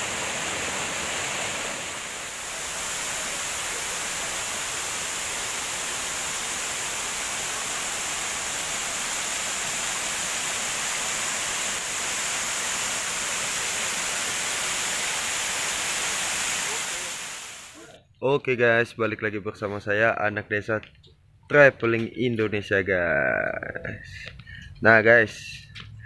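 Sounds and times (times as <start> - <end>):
waterfall rushing: 0.0 - 17.8.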